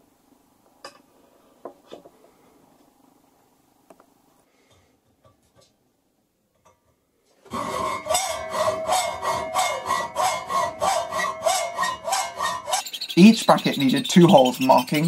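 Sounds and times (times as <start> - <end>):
hacksaw cutting metal: 7.5 - 15.0.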